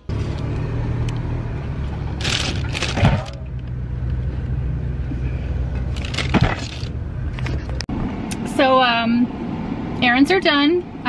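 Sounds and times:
boxes and bags clattering: 2.2s - 3.5s, 5.9s - 6.9s.

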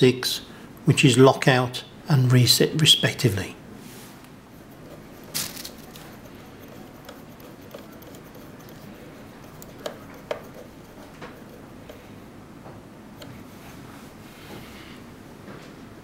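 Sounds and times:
screwdriver clicking on plastic: 4.8s - 12.1s.

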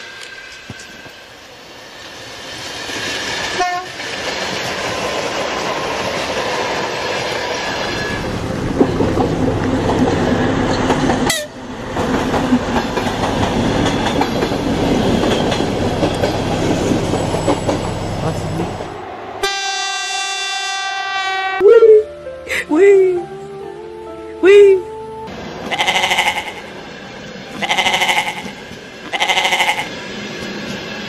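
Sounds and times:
train running on rails: 0.0s - 21.6s, 25.0s - 31.0s
train horn: 3.5s - 4.0s, 11.2s - 11.6s, 19.4s - 21.6s, 27.6s - 29.9s.

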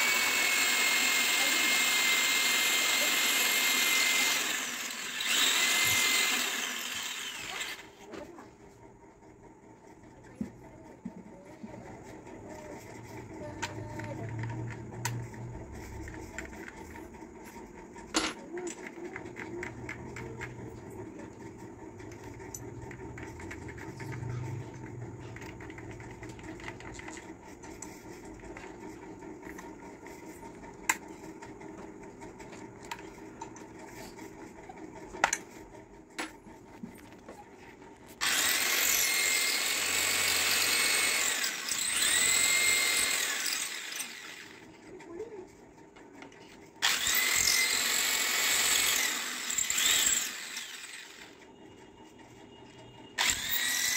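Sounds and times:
electric drill boring into tile: 0.0s - 8.0s, 38.2s - 44.6s, 46.8s - 51.4s, 53.2s - 53.9s.

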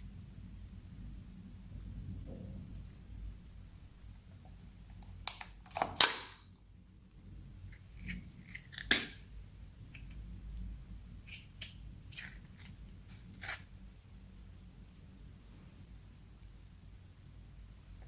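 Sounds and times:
plastic lid cracking and popping: 5.2s - 6.4s.

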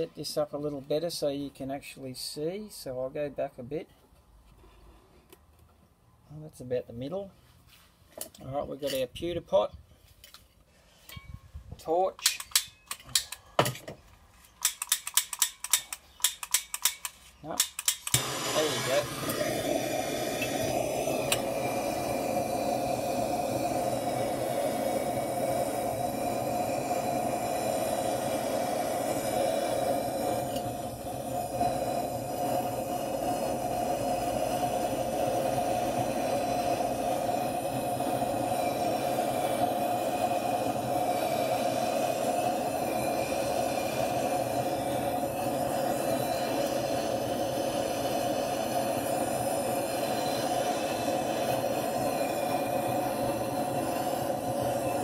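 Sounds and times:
gas torch flame roaring: 14.6s - 55.0s.

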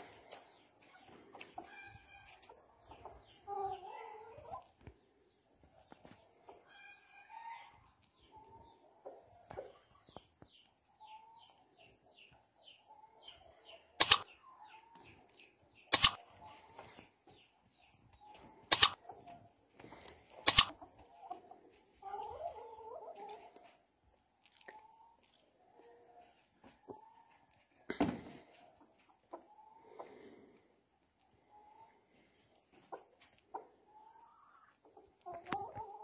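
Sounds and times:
small bird chirping: 12.2s - 16.2s, 17.4s - 19.0s, 20.5s - 20.8s
mouse-click sound effects: 14.0s - 14.3s, 15.9s - 16.2s, 18.7s - 19.0s, 20.5s - 20.7s
hens clucking: 18.2s - 23.9s, 28.5s - 36.0s.

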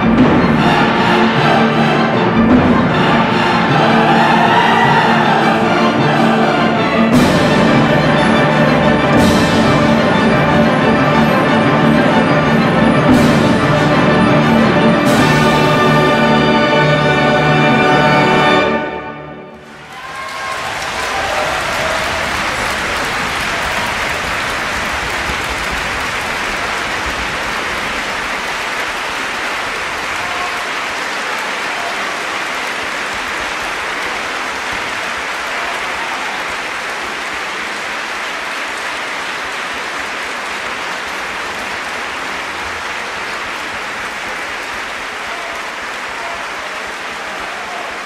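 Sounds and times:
audience applauding: 19.5s - 48.0s.

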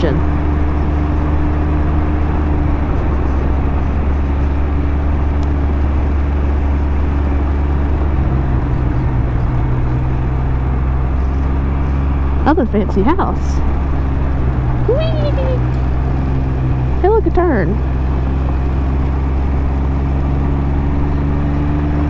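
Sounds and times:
wind rush on microphone: 0.0s - 12.5s
three-wheeler engine cruising: 0.0s - 22.0s.

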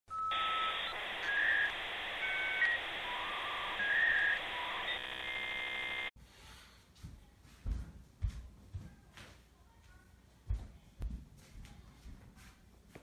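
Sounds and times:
whistle-like electronic tones: 0.1s - 6.0s
buzzing tone: 0.3s - 6.1s.

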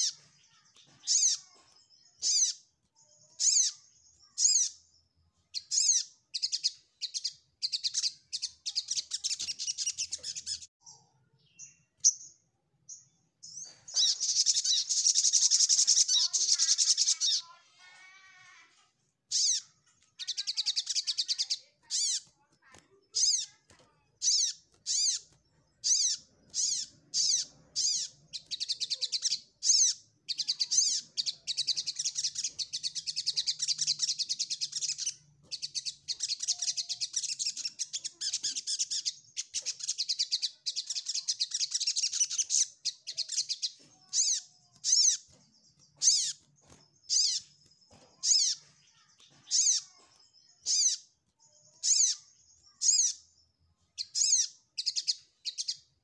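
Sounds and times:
sunbird singing: 0.0s - 17.6s, 19.3s - 56.0s.

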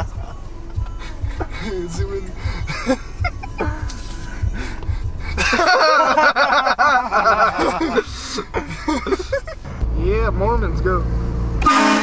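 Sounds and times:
low rumble: 0.0s - 5.7s, 7.0s - 11.7s
hearty laughter: 2.6s - 3.9s, 4.6s - 9.6s.

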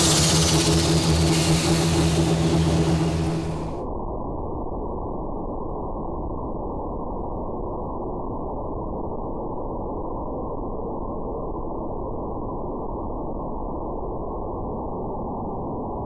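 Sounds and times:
engine running on dyno: 0.0s - 3.9s
muffled rumble: 0.0s - 4.0s.

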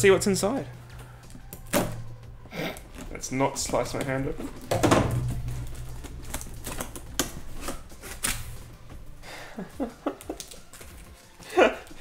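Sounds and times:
cardboard flaps squeaking: 0.8s - 9.1s
packing tape and cardboard scraping: 2.6s - 8.8s.

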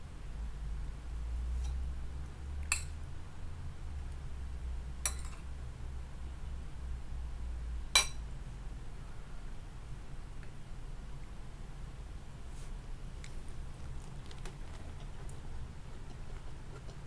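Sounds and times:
low steady hum: 0.0s - 17.0s
spoon clinking ceramic bowl: 5.1s - 5.4s, 8.0s - 8.2s.

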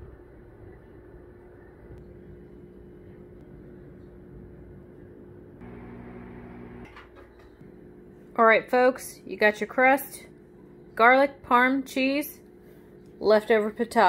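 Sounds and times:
hum with steady tones: 0.0s - 7.0s
steady low hum: 0.0s - 9.5s.

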